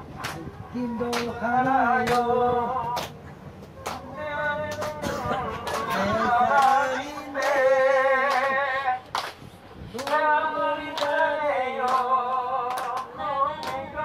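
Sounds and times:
sharp claps: 0:01.1 - 0:01.4, 0:02.0 - 0:02.3, 0:02.9 - 0:03.2, 0:03.8 - 0:04.1, 0:04.7 - 0:07.6, 0:08.2 - 0:09.4, 0:10.0 - 0:10.2, 0:10.9 - 0:13.9.

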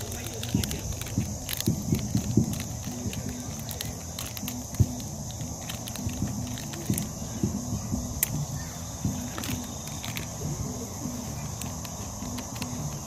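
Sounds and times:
high-pitched hiss: 0:00.0 - 0:13.0
voices murmuring: 0:00.0 - 0:13.0
sharp clicks: 0:11.4 - 0:13.0.

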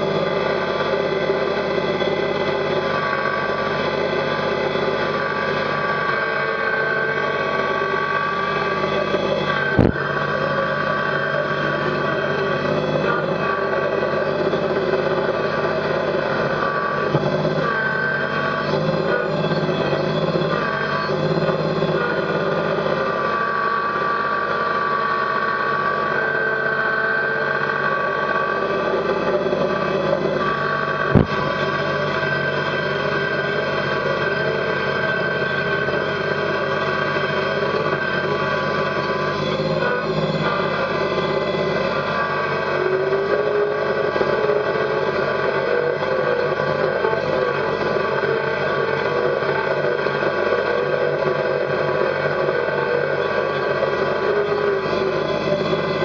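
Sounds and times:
diesel tractor engine running: 0:00.0 - 0:56.0.

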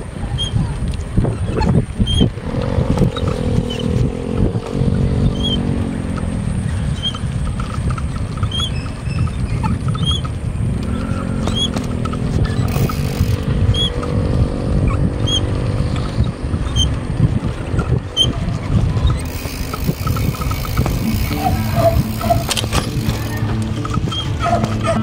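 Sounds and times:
road rumble: 0:00.0 - 0:25.0
wind buffeting microphone: 0:00.0 - 0:25.0
humming drone: 0:10.8 - 0:25.0.

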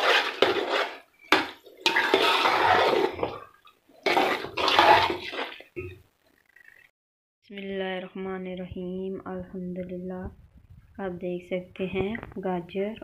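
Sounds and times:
spoon scraping a metal pot: 0:00.0 - 0:05.7.

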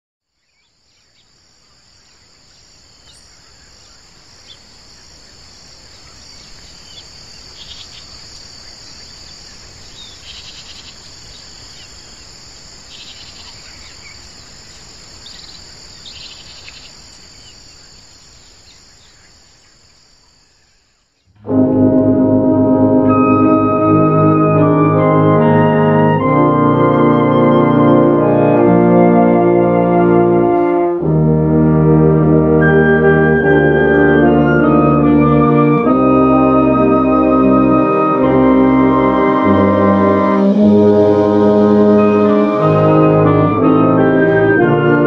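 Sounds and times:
insects trilling: 0:00.4 - 0:21.3.

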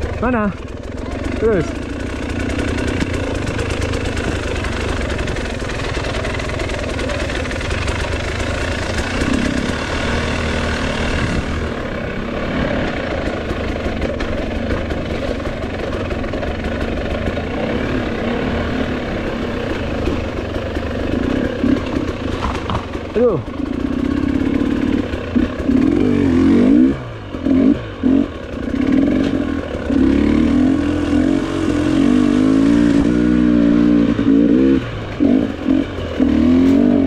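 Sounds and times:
dirt bike engine running: 0:00.0 - 0:37.0.

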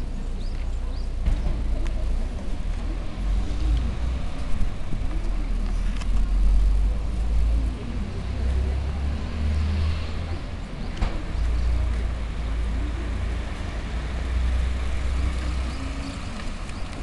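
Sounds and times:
car driving past: 0:05.4 - 0:16.8
bus engine idling: 0:10.2 - 0:17.0.

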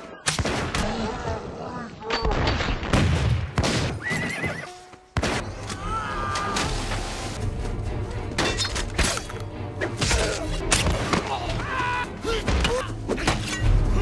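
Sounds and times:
action film music: 0:05.2 - 0:14.0.

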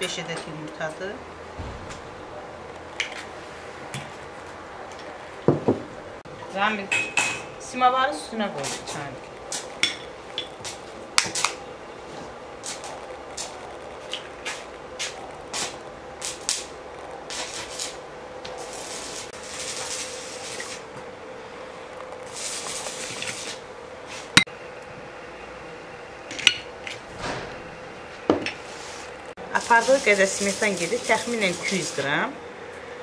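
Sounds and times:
sharp knock: 0:01.6 - 0:04.3.

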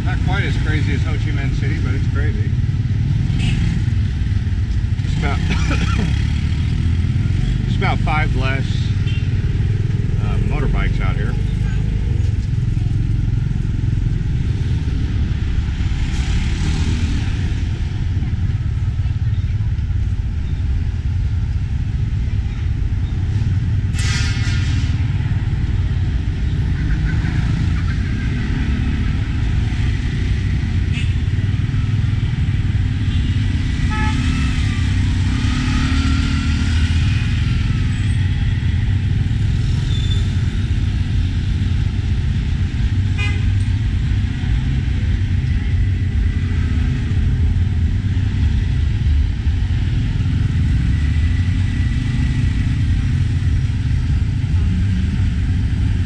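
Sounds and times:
motorcycle engine rumble: 0:00.0 - 0:56.0
horn toot: 0:33.2 - 0:34.7, 0:43.2 - 0:43.6.

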